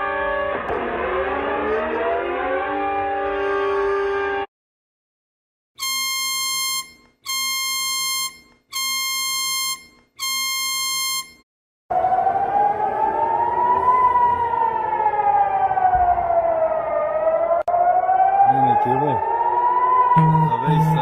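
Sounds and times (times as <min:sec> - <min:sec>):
warning siren wailing: 0:00.0 - 0:04.5, 0:05.8 - 0:21.0
alarm horn blasts: 0:05.8 - 0:11.4.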